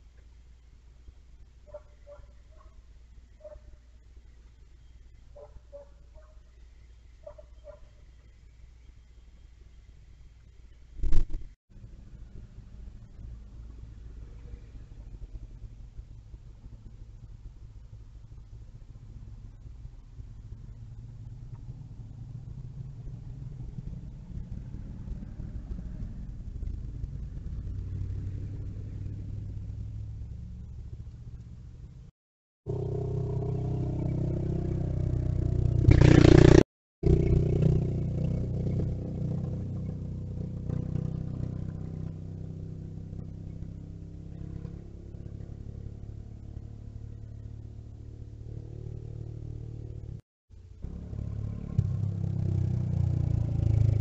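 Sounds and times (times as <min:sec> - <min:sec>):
mini bike engine revving: 0:32.7 - 0:41.9.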